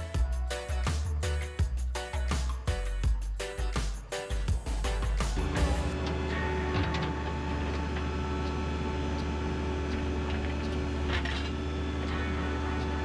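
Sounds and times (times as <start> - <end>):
backhoe engine running: 4.9 - 13.0.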